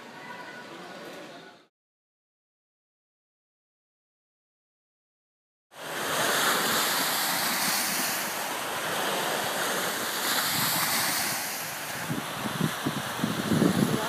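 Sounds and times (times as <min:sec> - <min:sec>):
small waves washing onto shore: 0:05.8 - 0:14.0
wind buffeting microphone: 0:06.2 - 0:14.0.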